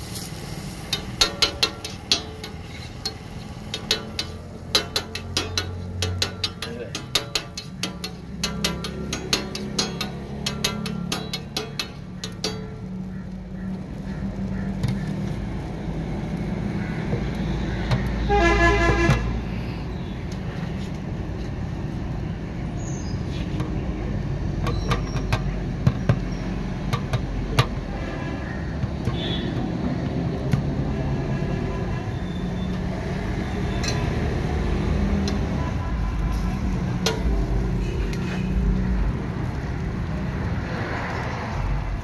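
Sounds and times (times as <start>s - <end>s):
street traffic rumbling: 0.0s - 42.0s
vehicle horn honking: 18.2s - 19.3s.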